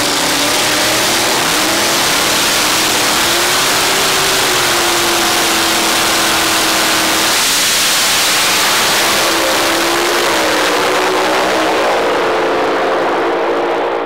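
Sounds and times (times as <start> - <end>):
dragster engine at full throttle: 0.0 - 14.0.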